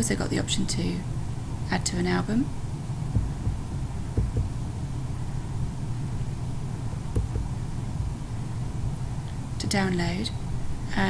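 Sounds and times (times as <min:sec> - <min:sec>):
steady low hum: 0:00.0 - 0:11.0
faint soft bumps: 0:03.1 - 0:05.3, 0:06.8 - 0:08.5.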